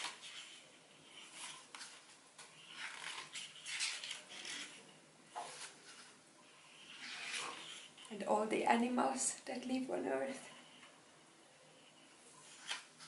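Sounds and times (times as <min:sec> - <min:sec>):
book pages rustling: 0:00.0 - 0:08.1, 0:12.4 - 0:13.0.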